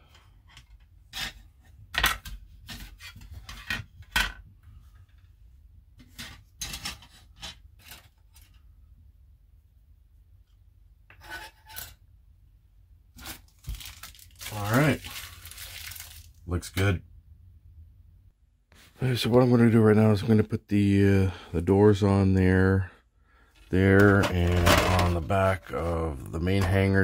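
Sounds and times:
plastic parts tapping and scraping: 0:00.0 - 0:05.3, 0:06.0 - 0:08.6, 0:23.5 - 0:25.8, 0:26.4 - 0:27.0.

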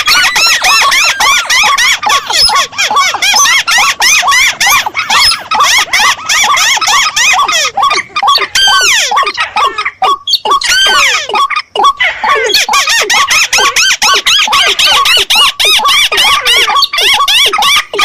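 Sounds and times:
squeaky waterbird calls: 0:00.0 - 0:18.0.

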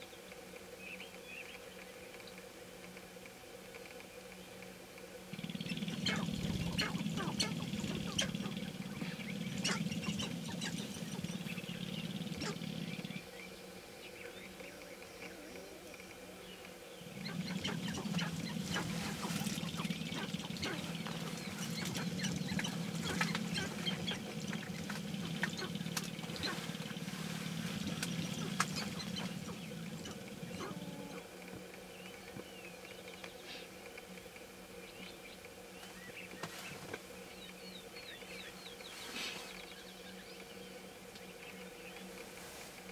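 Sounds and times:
steady low hum: 0:00.0 - 0:42.9
grouse clicks and calls: 0:00.1 - 0:42.9.

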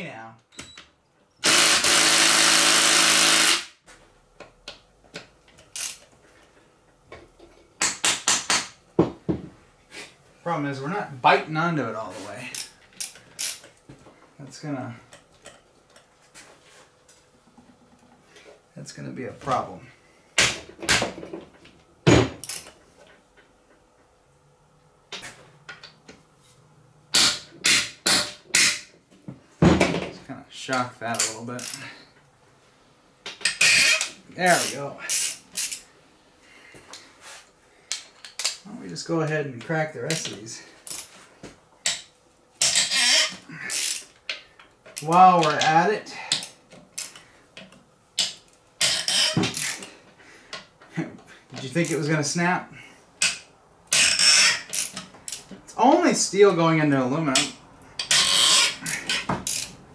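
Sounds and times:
cordless impact wrench running: 0:01.4 - 0:03.8.

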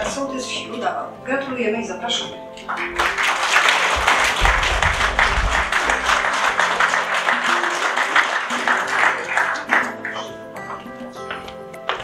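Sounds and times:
music playing: 0:00.0 - 0:12.0
small group applauding: 0:02.6 - 0:10.9.

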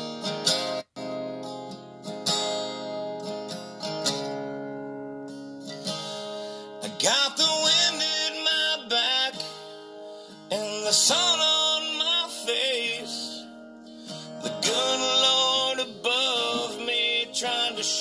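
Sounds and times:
acoustic guitar strummed: 0:00.0 - 0:18.0
man singing country song: 0:06.8 - 0:18.0.

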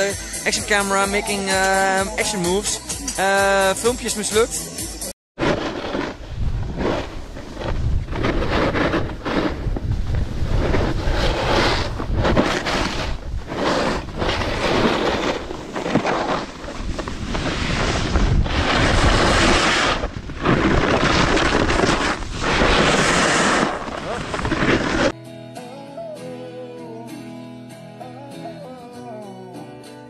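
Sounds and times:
snowboard sliding over snow: 0:05.4 - 0:25.2
wind buffeting microphone: 0:06.2 - 0:25.0.

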